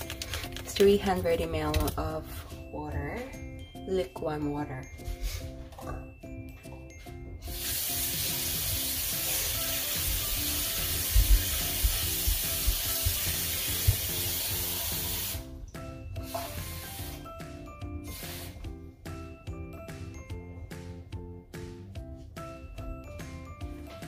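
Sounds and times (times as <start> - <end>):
kitchen tap running: 7.4 - 15.4.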